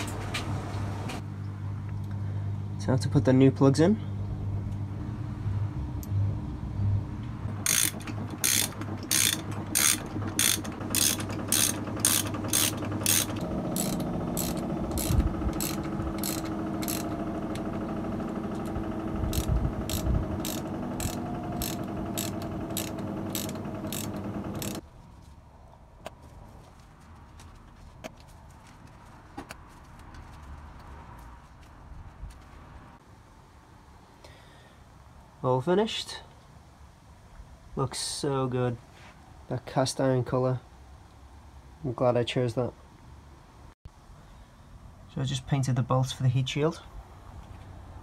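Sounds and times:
socket ratchet clicking: 7.6 - 17.8, 18.5 - 24.8.

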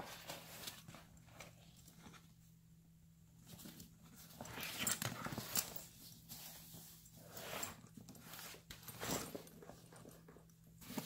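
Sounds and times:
fabric bag rustling: 3.5 - 11.0.

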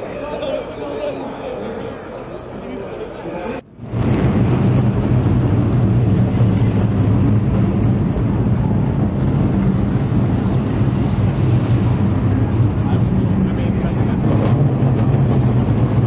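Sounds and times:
car engine running at low revs: 3.6 - 16.0.

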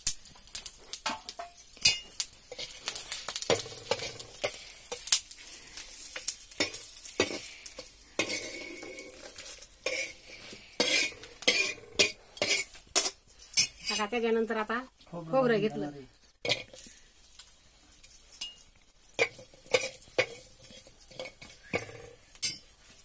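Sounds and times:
light sizzle: 0.0 - 23.0
metal spoon scraping metal plate: 6.6 - 14.2, 19.2 - 22.7.

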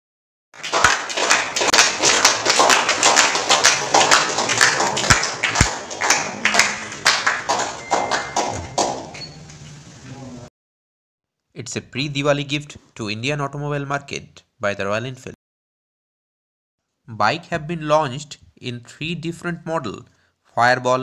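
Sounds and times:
people clapping: 0.6 - 9.6.

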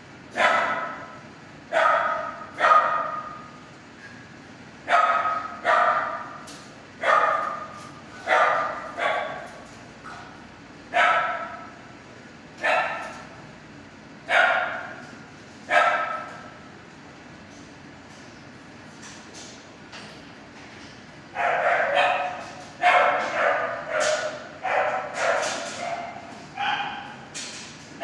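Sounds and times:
dog barking with echo: 0.4 - 1.1, 1.7 - 3.4, 4.9 - 6.4, 7.0 - 7.7, 8.3 - 9.4, 10.9 - 11.7, 12.6 - 13.1, 14.3 - 15.0, 15.7 - 16.3, 21.4 - 27.1.

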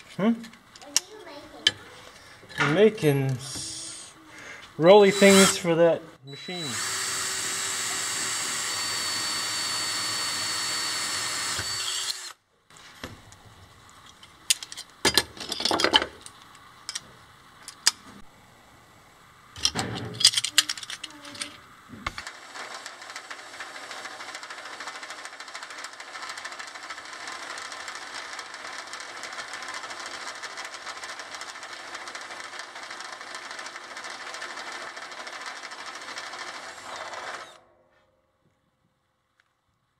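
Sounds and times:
cordless drill whining: 5.0 - 5.6, 6.3 - 12.4, 30.8 - 37.6
metal parts and tools clinking: 14.1 - 18.0, 19.6 - 21.6.

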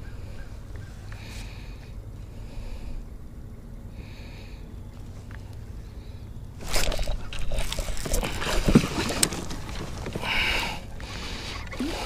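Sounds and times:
water splashing and sloshing: 6.6 - 12.0.

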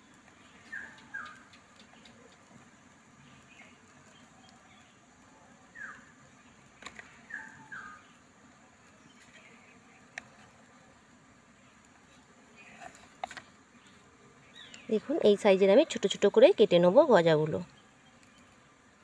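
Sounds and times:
small bird chirping: 0.2 - 2.5, 5.7 - 8.2, 13.7 - 15.3.

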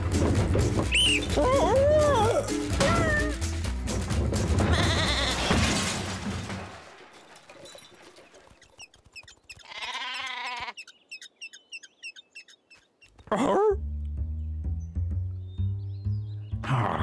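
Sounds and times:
sheep bleat: 4.7 - 5.5, 9.6 - 10.8.

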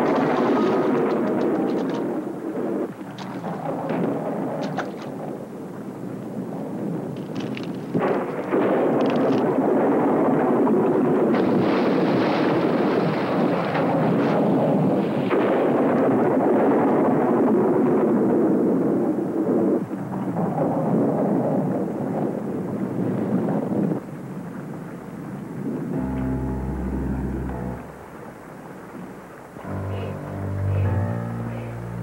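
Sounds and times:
heavy rain: 0.0 - 32.0
wind: 0.0 - 32.0
thunder: 7.9 - 24.2
sharp thunder cracks: 8.0 - 17.8.

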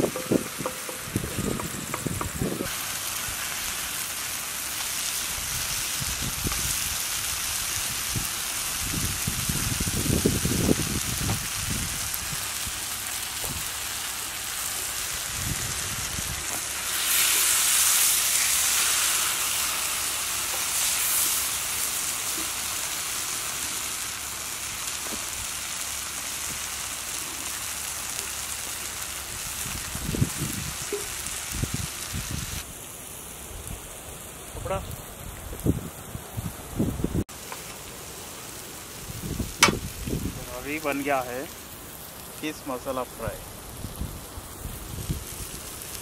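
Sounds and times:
spatula scraping and knocking pan: 0.0 - 2.5
fish sizzling on iron pan: 0.0 - 46.0.

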